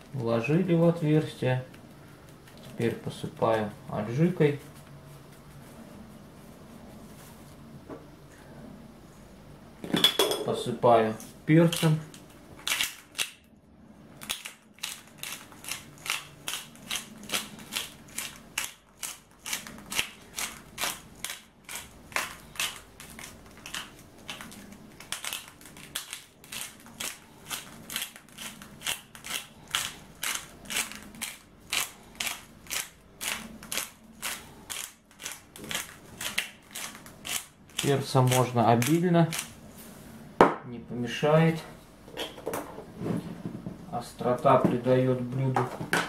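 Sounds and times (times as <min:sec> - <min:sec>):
pepper grinder crunching peppercorns: 0:11.5 - 0:13.5, 0:14.1 - 0:39.6.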